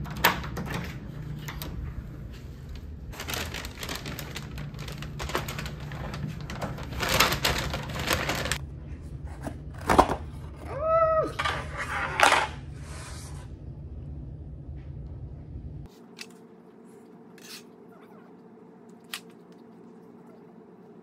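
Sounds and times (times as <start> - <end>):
steady low hum: 0.0 - 21.0
paper bag crinkling: 2.7 - 8.6.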